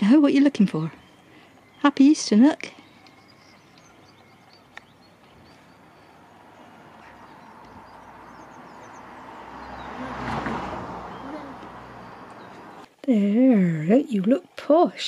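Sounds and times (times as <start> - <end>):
faint bird chirps: 0.6 - 10.2
vehicle passing by: 3.2 - 12.9.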